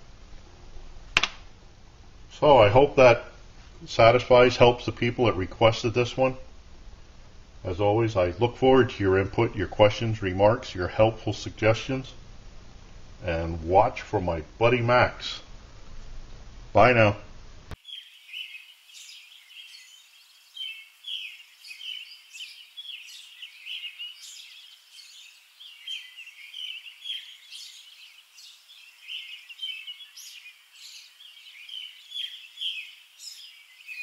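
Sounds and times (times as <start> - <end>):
small birds chirping: 17.7 - 34.0.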